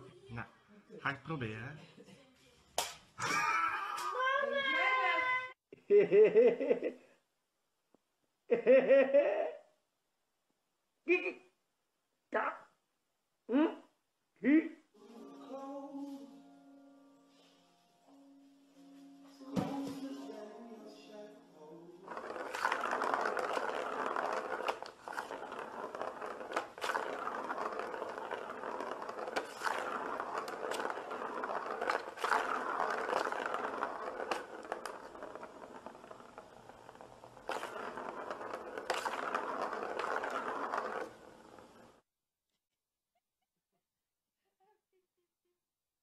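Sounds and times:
plastic ball rolling rattle: 0:22.0 - 0:42.0.

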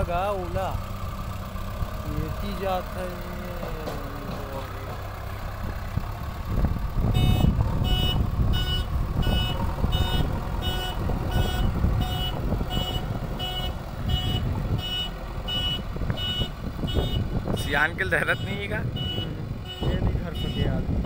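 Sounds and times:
diesel engine running under load: 0:00.0 - 0:21.0
reverse alarm beeping: 0:07.2 - 0:17.2, 0:18.2 - 0:20.7.

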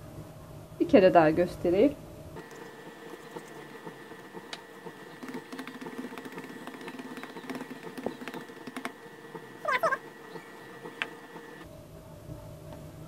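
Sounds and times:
faint steady hum: 0:00.0 - 0:13.0
hands pressing dough on glass: 0:03.1 - 0:11.6.

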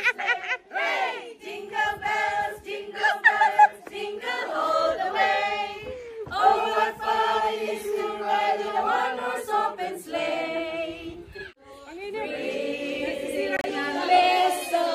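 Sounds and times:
group singing in unison: 0:00.0 - 0:11.2, 0:11.9 - 0:14.9.

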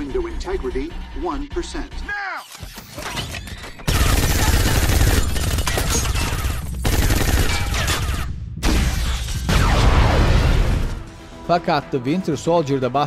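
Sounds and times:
automatic gunfire: 0:03.9 - 0:08.0.

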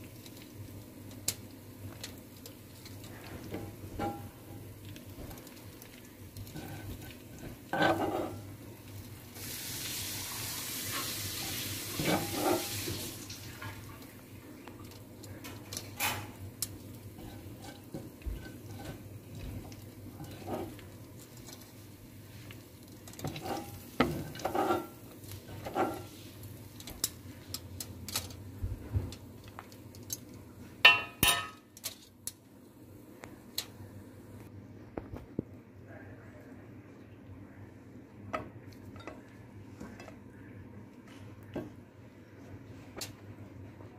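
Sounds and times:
steady hiss: 0:00.0 - 0:28.9
dishes and utensils clinking: 0:12.0 - 0:13.8, 0:23.2 - 0:26.1, 0:30.8 - 0:32.1, 0:38.4 - 0:40.2.

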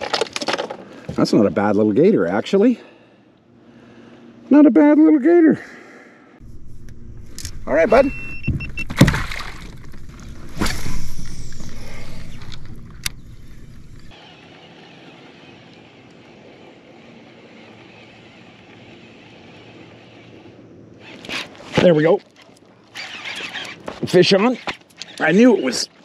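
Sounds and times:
water splashing and sloshing: 0:08.3 - 0:26.0.

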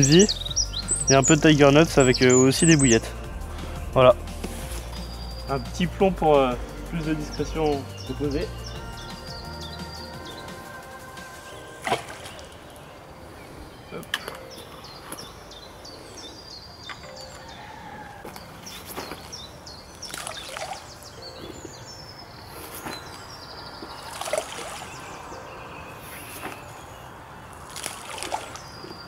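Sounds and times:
songbirds singing: 0:00.0 - 0:29.0
bait splashing into pond: 0:11.8 - 0:12.7, 0:20.0 - 0:20.9, 0:24.0 - 0:25.0, 0:27.6 - 0:28.8.

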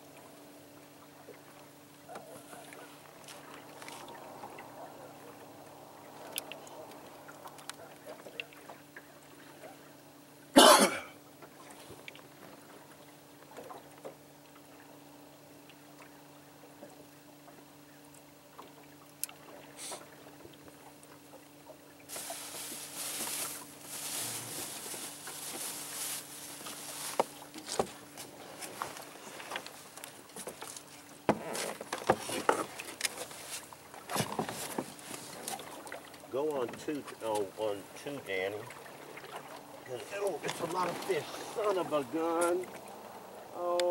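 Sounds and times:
fluttering water noise: 0:00.0 - 0:10.5, 0:18.4 - 0:43.6
low steady hum: 0:00.0 - 0:43.9
water lapping around boat: 0:00.0 - 0:43.9.

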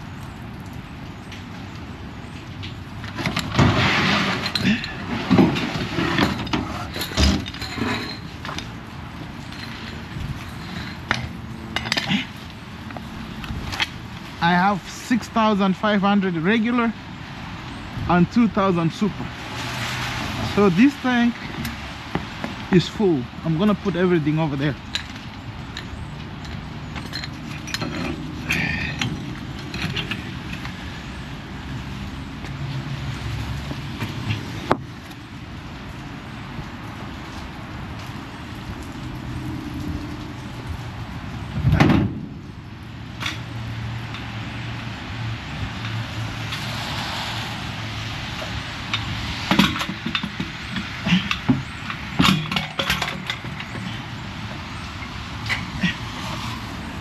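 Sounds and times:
metal hose fittings clanking: 0:04.2 - 0:08.8, 0:24.9 - 0:30.8, 0:48.4 - 0:56.4.

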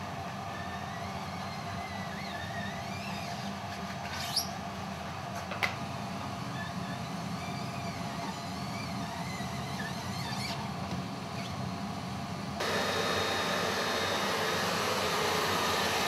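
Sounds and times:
foam dauber squeaking on screen: 0:04.2 - 0:04.6, 0:06.7 - 0:10.7.

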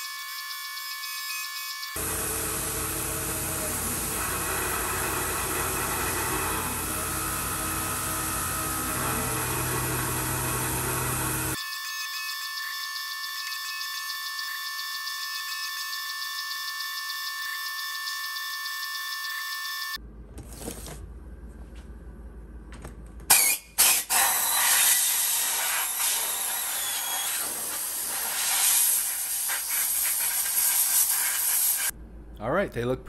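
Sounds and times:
high pulsing machine whine: 0:00.0 - 0:20.0, 0:24.2 - 0:29.7
compressed air blow gun hissing: 0:23.8 - 0:31.9.

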